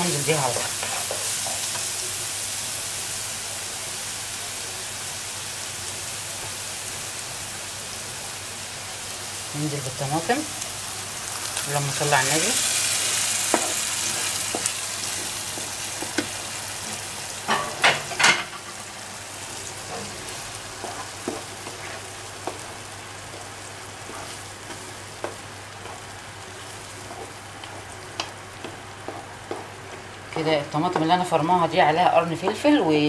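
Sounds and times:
tomato sizzling in frying pan: 0.0s - 33.0s
spoon scraping pan: 0.1s - 2.0s, 19.8s - 30.0s
spoon knocking on pan: 13.5s - 13.8s, 20.8s - 21.8s, 27.1s - 29.7s.

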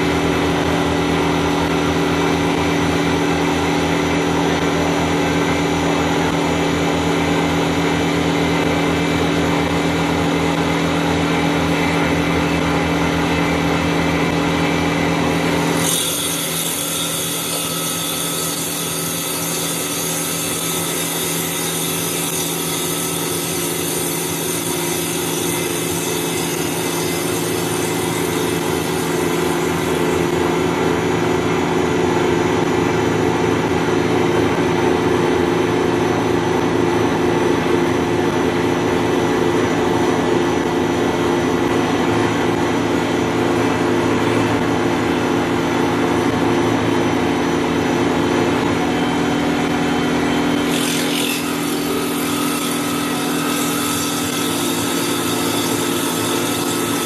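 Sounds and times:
circular saw blade cutting wood: 0.0s - 31.2s, 47.5s - 57.0s.

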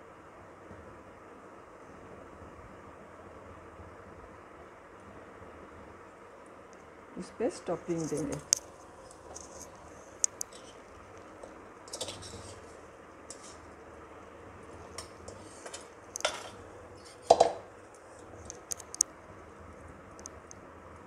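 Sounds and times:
steel spoon scraping a pot: 10.4s - 10.9s, 11.9s - 13.6s, 15.0s - 17.5s.

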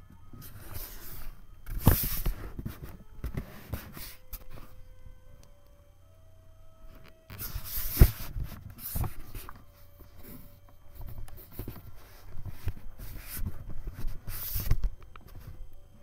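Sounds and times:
microphone handling rustle: 7.3s - 15.7s.

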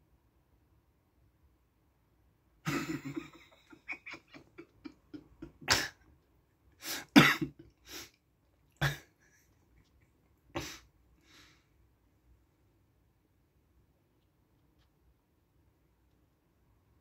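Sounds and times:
person making harsh throat sounds: 4.7s - 6.0s, 6.8s - 8.1s, 8.8s - 9.1s.

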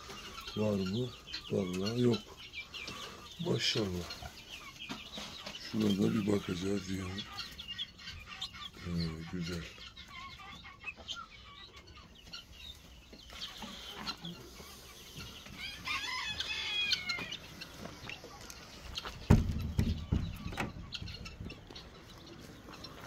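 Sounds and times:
chickens clucking: 0.0s - 23.0s
rooster crowing: 15.6s - 17.4s
loud low thump: 19.3s - 20.8s.

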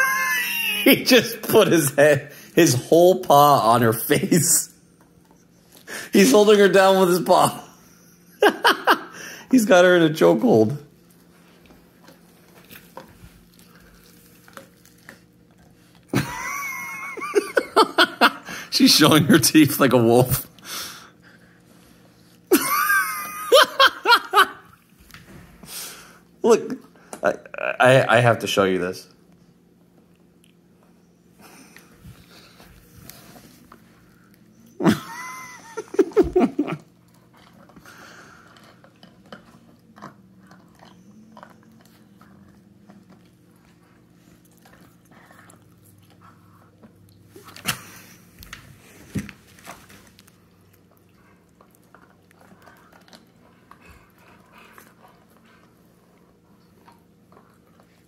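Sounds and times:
dog whining: 0.0s - 1.0s
breathy hiss: 2.2s - 2.6s, 5.8s - 6.2s, 9.1s - 9.5s, 18.4s - 18.8s, 20.6s - 22.2s, 25.4s - 26.3s
dogs snarling: 34.7s - 46.8s, 50.8s - 58.0s.

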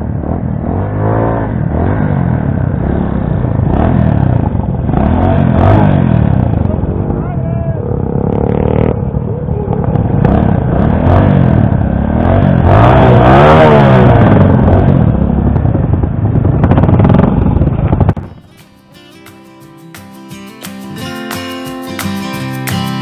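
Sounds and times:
motorcycles riding past: 0.0s - 15.7s.

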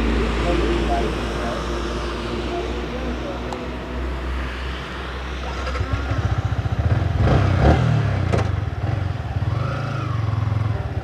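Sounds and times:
motorcycle engine running: 5.4s - 11.0s.

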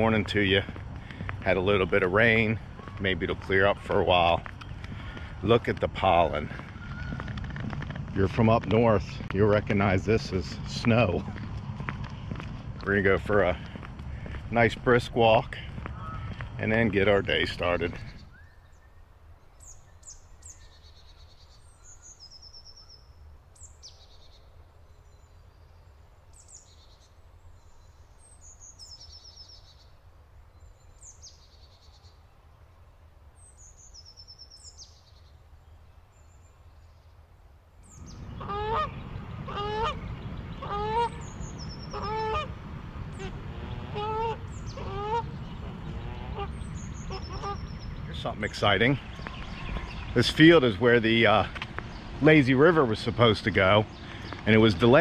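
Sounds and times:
small birds chirping: 0.0s - 32.6s, 33.4s - 37.2s, 37.8s - 55.0s
geese honking: 12.8s - 18.1s, 38.0s - 51.5s.

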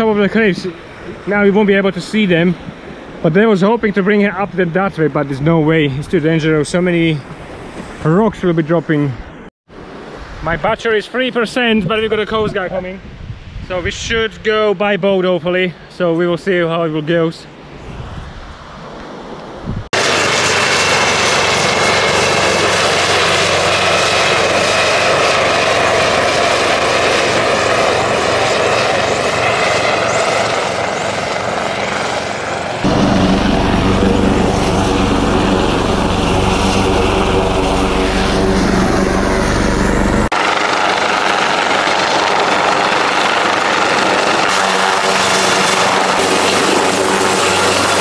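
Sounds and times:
helicopter flying close by: 20.0s - 48.0s.

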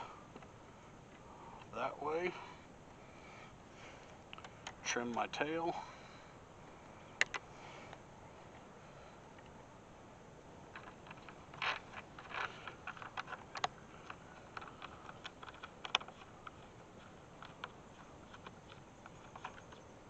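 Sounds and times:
light clicks and taps: 4.0s - 5.4s, 7.2s - 8.7s, 10.7s - 19.9s.

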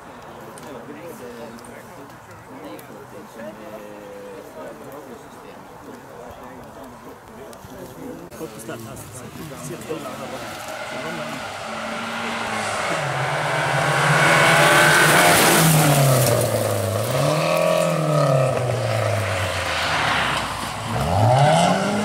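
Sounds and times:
rally car engine revving: 9.2s - 22.0s.

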